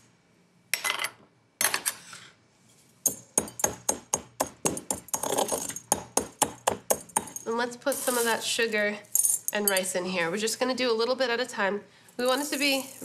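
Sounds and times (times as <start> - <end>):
wooden pestle pounding: 3.1 - 7.4.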